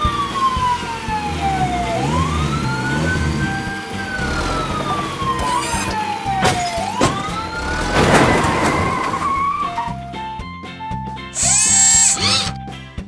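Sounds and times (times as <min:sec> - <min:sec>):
police siren wailing: 0:00.0 - 0:10.2
background music: 0:00.0 - 0:13.0.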